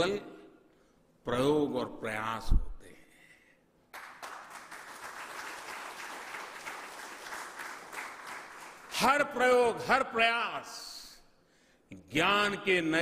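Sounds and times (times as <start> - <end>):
audience applauding: 3.9 - 9.1.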